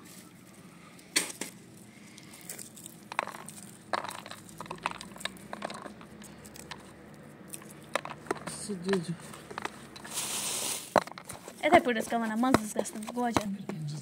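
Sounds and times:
nuts cracking by hand: 1.1 - 10.2
nut pieces dropping on steel plate: 3.1 - 6.9, 7.6 - 10.2.

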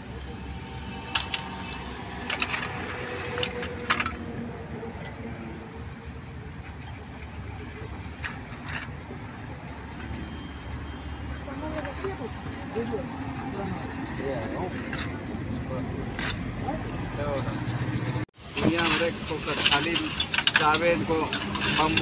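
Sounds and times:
small metal parts clicking: 1.1 - 4.2, 18.6 - 22.0.

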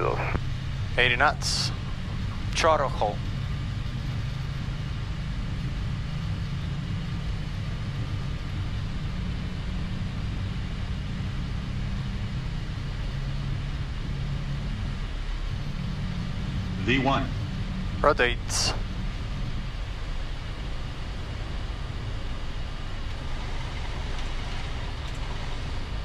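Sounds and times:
jet engines at takeoff thrust: 0.0 - 26.0
wheels rolling on runway: 23.0 - 26.0.

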